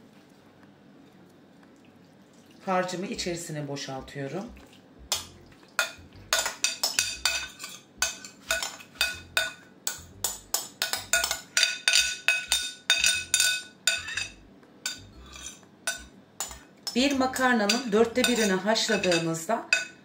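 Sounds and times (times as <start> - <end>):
metal spoon clinking on glass bowl: 5.1 - 20.0.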